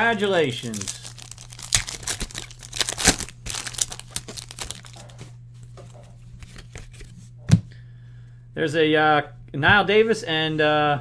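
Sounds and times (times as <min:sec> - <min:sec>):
foil wrapper crinkling and tearing: 0:00.0 - 0:05.3
cards being handled: 0:00.4 - 0:07.2.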